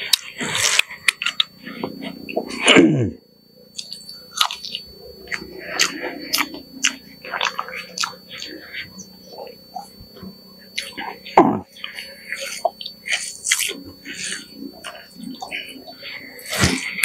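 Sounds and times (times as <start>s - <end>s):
man chewing food: 0.0s - 17.0s
short falling vocal sound: 2.5s - 3.2s.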